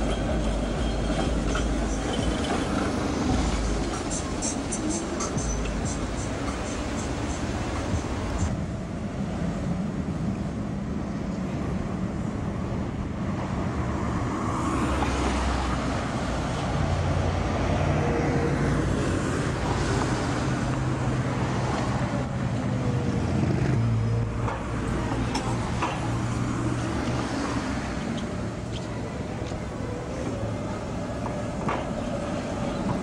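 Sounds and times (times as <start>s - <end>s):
car engines passing: 0.0s - 33.0s
trams running on track: 0.0s - 33.0s
sharp clicks of tram: 24.4s - 26.3s, 31.1s - 33.0s.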